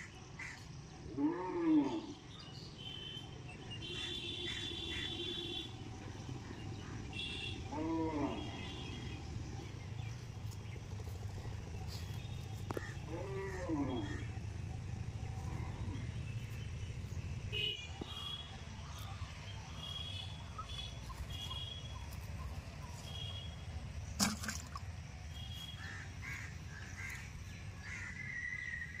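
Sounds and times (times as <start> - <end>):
birds chirping: 0.0 - 29.0
drawn-out rising and falling calls: 3.3 - 29.0
steady low rumble: 4.5 - 24.2.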